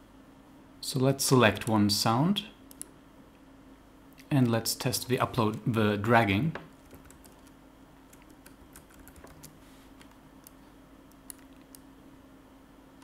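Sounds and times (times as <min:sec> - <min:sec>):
low steady hum: 0:00.0 - 0:13.0
mouse and keyboard clicks: 0:08.2 - 0:11.8.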